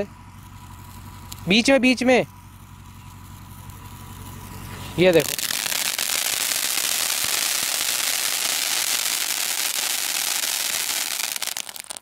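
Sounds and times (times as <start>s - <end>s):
firework crackles: 0.0s - 1.6s, 2.5s - 12.0s
firework fountain hissing: 2.5s - 12.0s.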